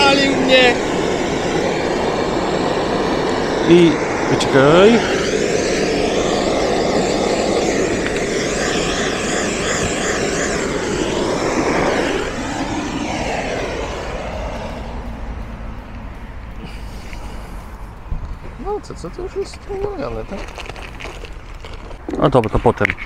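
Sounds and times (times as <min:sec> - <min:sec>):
gas torch flame hissing: 0:00.0 - 0:15.7, 0:16.6 - 0:18.5.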